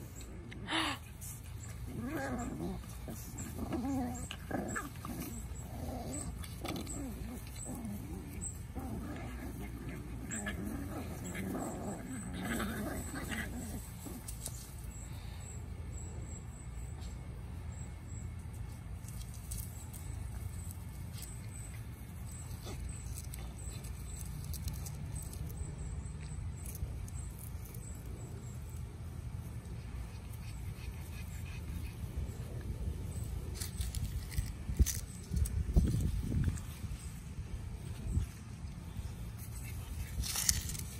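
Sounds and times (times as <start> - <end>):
puppies running on grass: 18.3 - 25.6, 28.5 - 40.9.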